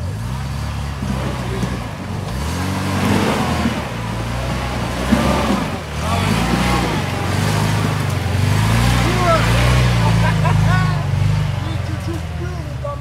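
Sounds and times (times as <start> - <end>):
off-road vehicle engine revving: 0.0 - 13.0.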